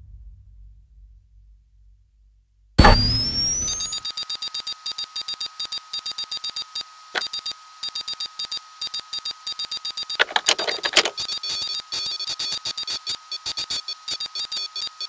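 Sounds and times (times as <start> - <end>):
harsh electronic hits: 2.8 - 3.9.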